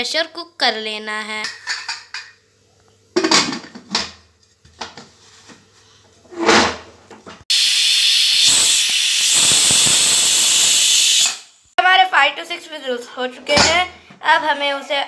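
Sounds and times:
pressure cooker hissing: 0:07.5 - 0:11.7.

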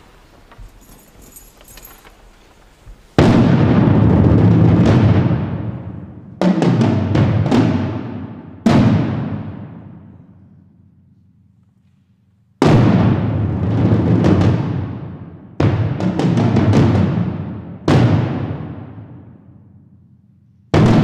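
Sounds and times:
taiko drums: 0:03.2 - 0:10.0, 0:12.6 - 0:19.2.

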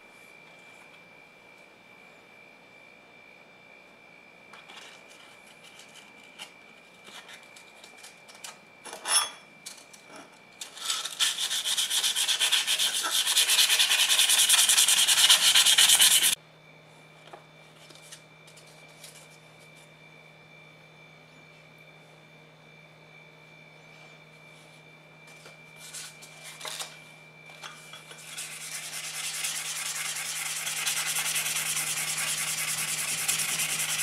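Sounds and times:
abrasive paper scraping metal: 0:10.6 - 0:16.4, 0:28.1 - 0:34.0.

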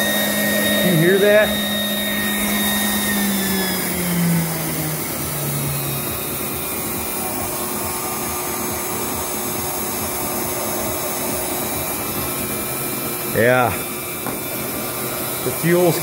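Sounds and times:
low tone sliding down: 0:00.0 - 0:06.3
jet-like combustion roar: 0:00.0 - 0:16.0.

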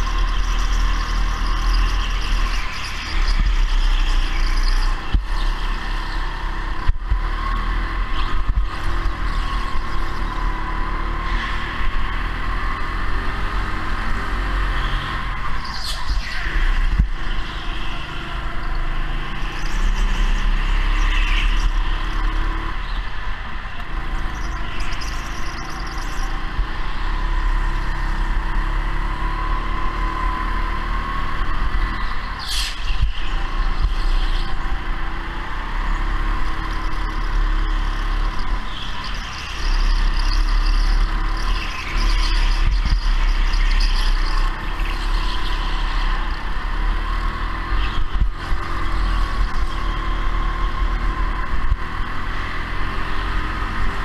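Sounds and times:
go-kart engine drone: 0:00.0 - 0:54.0.

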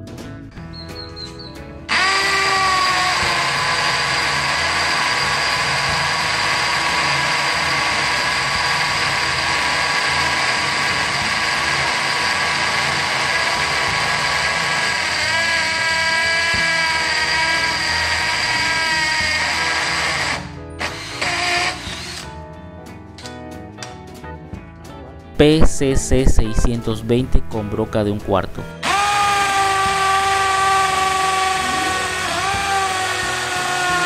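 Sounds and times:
hammer drill boring into concrete: 0:01.9 - 0:22.3, 0:28.8 - 0:34.0.

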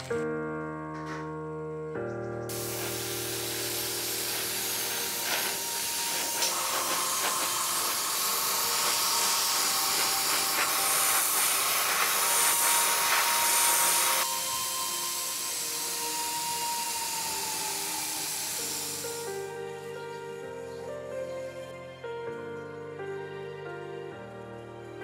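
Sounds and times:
airbrush spraying hiss: 0:02.5 - 0:20.0.

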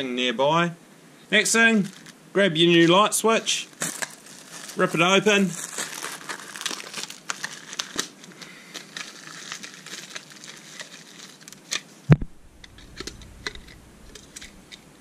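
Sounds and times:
plastic wrapping crinkling: 0:01.8 - 0:14.8.

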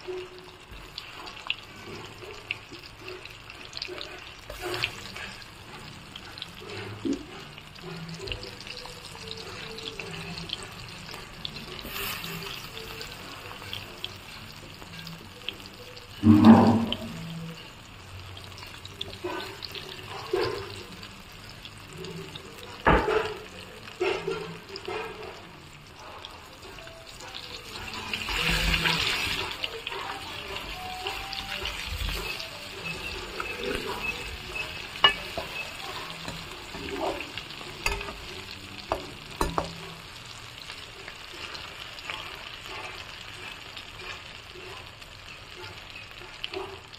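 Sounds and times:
oil sizzling and bubbling: 0:00.0 - 0:46.9
metal spoon knocking on pan: 0:33.4 - 0:37.2, 0:38.9 - 0:39.8.

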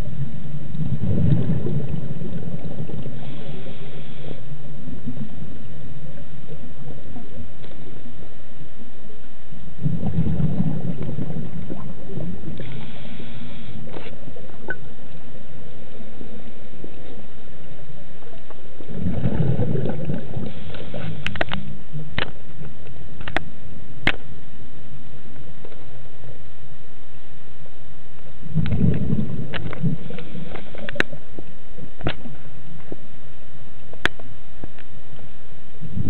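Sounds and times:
regulator bubbles gurgling: 0:00.0 - 0:08.3, 0:09.6 - 0:23.4, 0:28.4 - 0:33.0, 0:35.8 - 0:36.0
low underwater rumble: 0:00.0 - 0:36.0.

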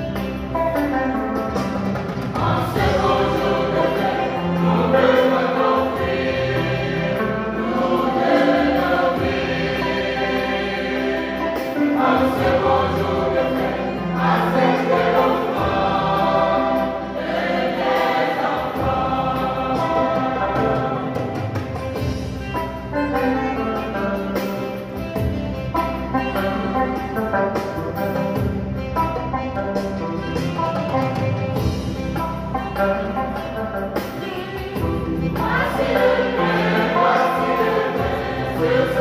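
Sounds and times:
choir singing a hymn: 0:02.2 - 0:22.3, 0:34.1 - 0:39.0.

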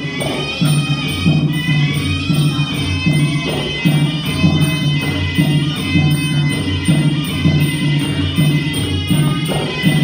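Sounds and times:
drums beating: 0:00.0 - 0:10.0
jingling percussion: 0:00.0 - 0:10.0.

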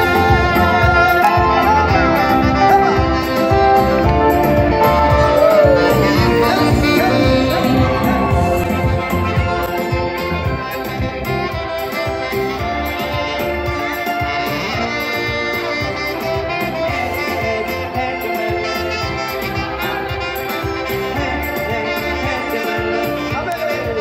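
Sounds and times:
steady drum beat: 0:00.0 - 0:12.8
saxophone: 0:00.0 - 0:24.0.

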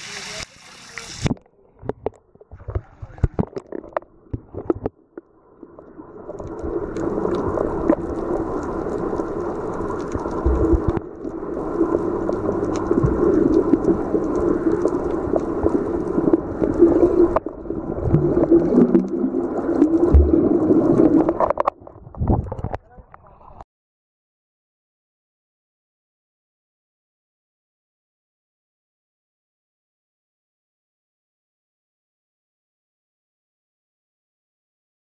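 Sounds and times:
faint clicks and crackles: 0:00.1 - 0:23.6
low underwater drone: 0:05.0 - 0:21.7.

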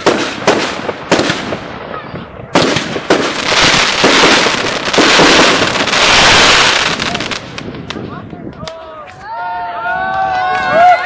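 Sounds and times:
fireworks bursting: 0:00.0 - 0:08.3
dense crackling and bangs: 0:00.0 - 0:08.6.

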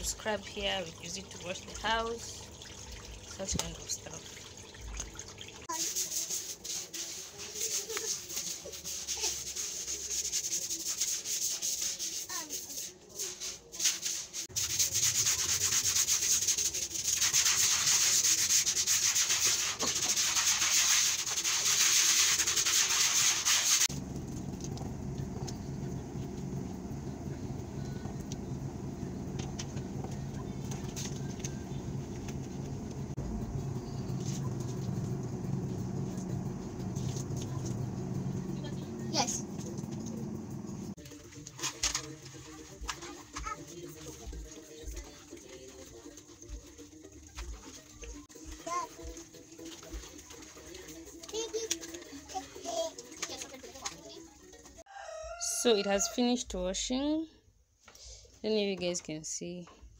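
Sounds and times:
brush scrubbing wet concrete: 0:05.7 - 0:24.0
steady low hum: 0:23.9 - 0:41.0.

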